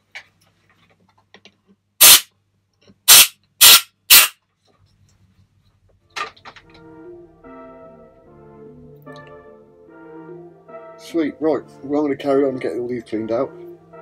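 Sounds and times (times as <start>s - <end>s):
compressed air blasts: 2.0s - 2.3s, 3.1s - 4.4s.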